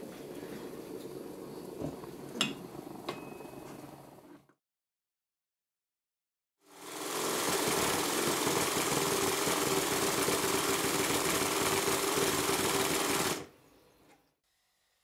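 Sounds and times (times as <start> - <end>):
model steam engine running fast: 6.6 - 13.5.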